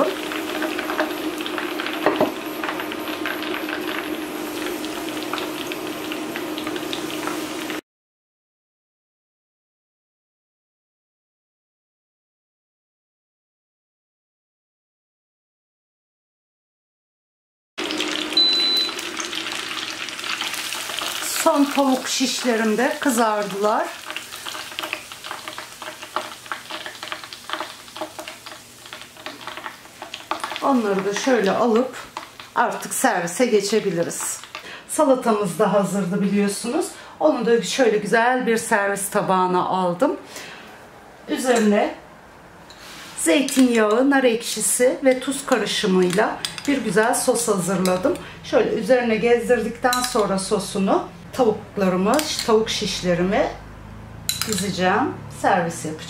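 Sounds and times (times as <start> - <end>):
chicken deep-frying in oil: 0.0 - 7.8, 17.8 - 36.8, 52.0 - 56.0.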